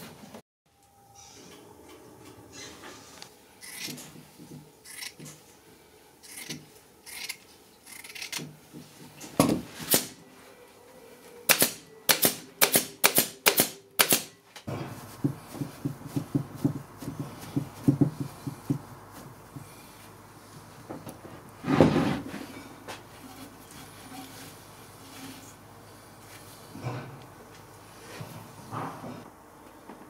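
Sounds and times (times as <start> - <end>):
staple gun firing: 11.5 - 14.3.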